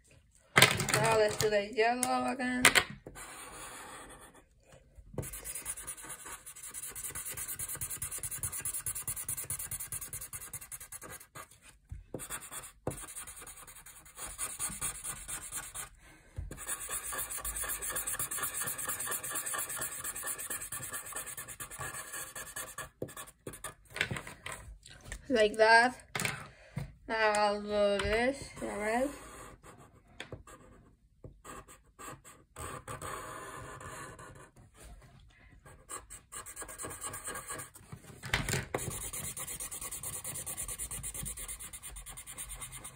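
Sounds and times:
marker scribbling on paper: 0:03.1 - 0:04.5, 0:05.2 - 0:15.9, 0:16.5 - 0:23.8, 0:35.7 - 0:37.8, 0:38.8 - 0:42.9.

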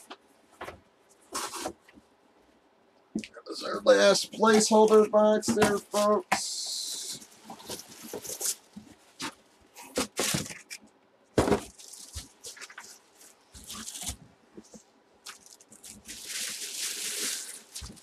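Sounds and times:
plastic bag crinkling: 0:11.6 - 0:14.2, 0:15.2 - 0:18.0.

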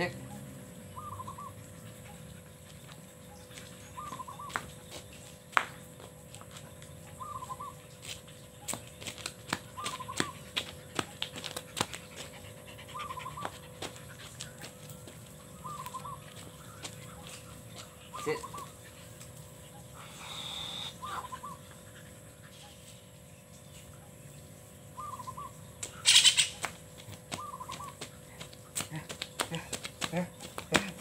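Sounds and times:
bird warbling call: 0:01.0 - 0:01.6, 0:03.3 - 0:04.6, 0:07.2 - 0:07.9, 0:09.7 - 0:10.4, 0:15.5 - 0:17.3, 0:19.7 - 0:21.7, 0:25.0 - 0:26.6, 0:27.3 - 0:28.0
dog's feet tapping on concrete: 0:02.6 - 0:19.6, 0:25.8 - 0:31.0.

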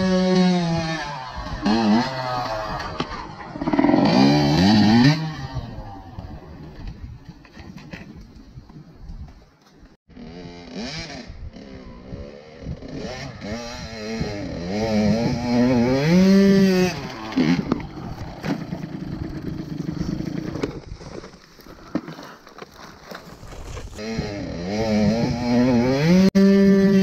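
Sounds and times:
dirt bike engine revving: 0:00.0 - 0:06.7, 0:10.1 - 0:20.8, 0:23.8 - 0:27.0.

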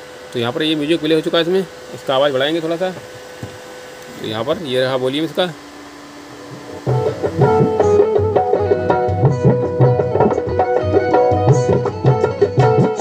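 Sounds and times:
music with steady drum beat: 0:06.4 - 0:13.0.

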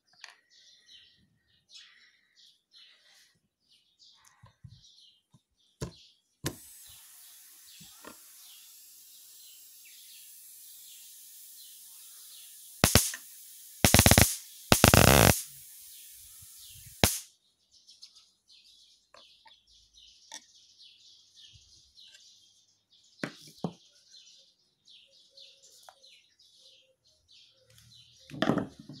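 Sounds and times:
generator module hissing with high whine: 0:06.6 - 0:17.3
electric sparks cracking: 0:12.4 - 0:17.3
sharp snaps: 0:12.8 - 0:15.5, 0:16.9 - 0:17.3
faint bird chirps: 0:17.8 - 0:29.0.

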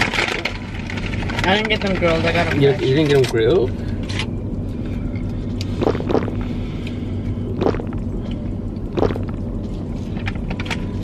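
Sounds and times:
air conditioning hum: 0:00.0 - 0:11.0
car engine idling: 0:00.0 - 0:11.0
gulping from a bottle: 0:05.8 - 0:06.4, 0:07.5 - 0:08.0, 0:08.9 - 0:09.4.

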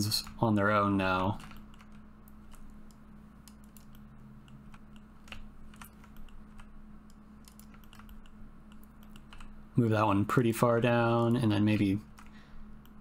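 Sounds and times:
steady low hum: 0:00.0 - 0:13.0
keyboard keys clicking: 0:01.3 - 0:09.5.

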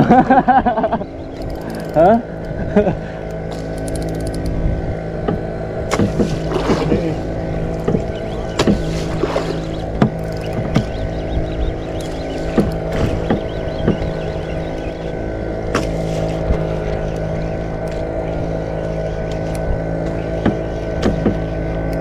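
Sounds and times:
boat engine humming: 0:00.0 - 0:22.0
knocks and clicks on hull: 0:05.2 - 0:22.0.

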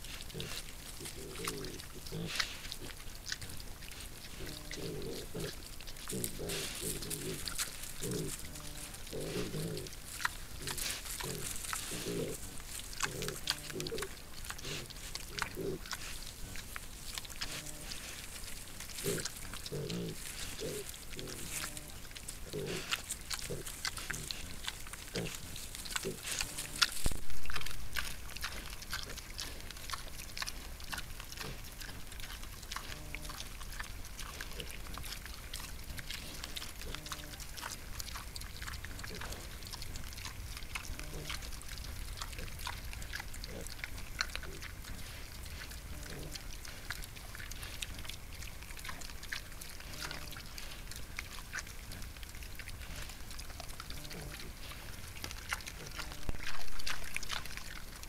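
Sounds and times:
boar grunting: 0:00.0 - 0:03.6, 0:04.2 - 0:16.7, 0:17.3 - 0:33.6, 0:42.2 - 0:47.8, 0:49.8 - 0:50.8, 0:53.8 - 0:58.0
crackling clicks of rooting: 0:00.3 - 0:44.8.

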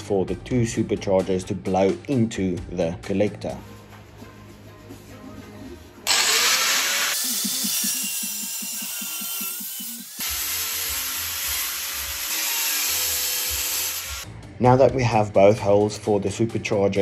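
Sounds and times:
background music: 0:00.0 - 0:17.0
angle grinder cutting steel: 0:06.1 - 0:14.2.

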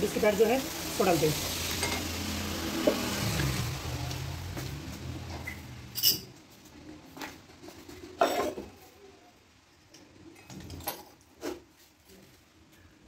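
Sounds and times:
metal hand tools clinking: 0:05.9 - 0:06.3.

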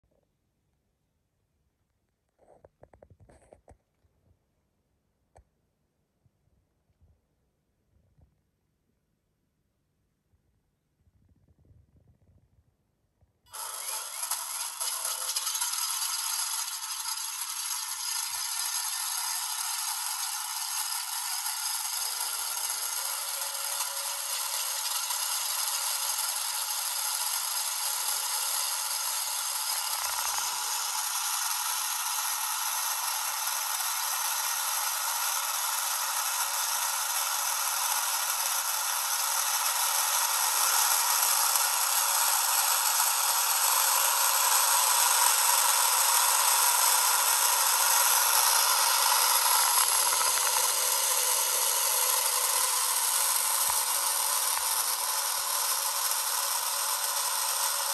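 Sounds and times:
tinny model engine buzz: 0:13.5 - 0:57.9.

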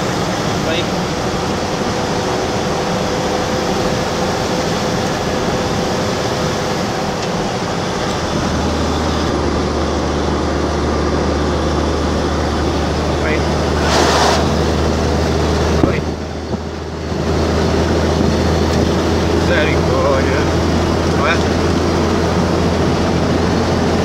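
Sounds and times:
vehicle engine running: 0:00.0 - 0:24.0.

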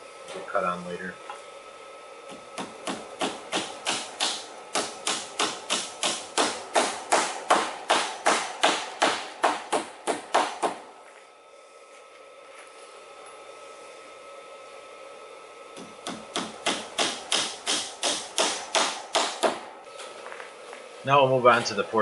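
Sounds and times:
hammer striking fasteners: 0:02.6 - 0:10.8, 0:15.8 - 0:19.6.

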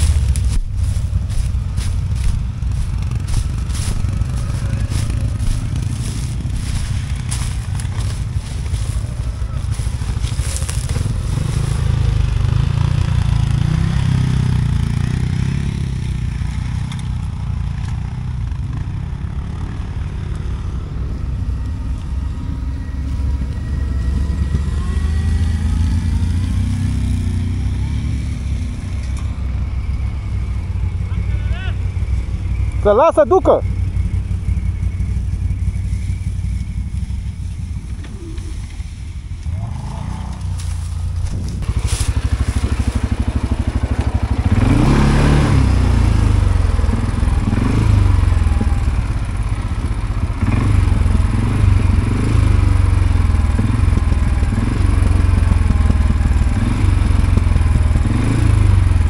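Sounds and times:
atv engine under load: 0:00.0 - 0:59.0.

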